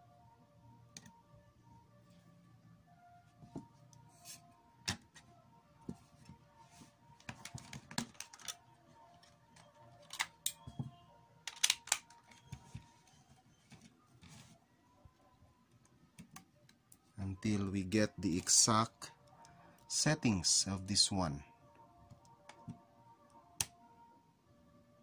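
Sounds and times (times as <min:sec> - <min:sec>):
plastic parts clicking and knocking: 0:07.2 - 0:12.9.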